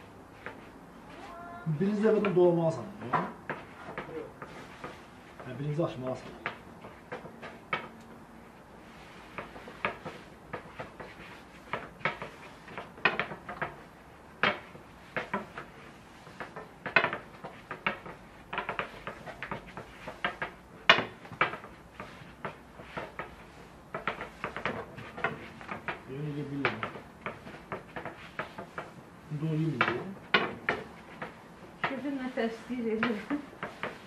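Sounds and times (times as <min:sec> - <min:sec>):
rolling pins knocking on wooden board: 0:09.3 - 0:29.0, 0:29.8 - 0:32.1.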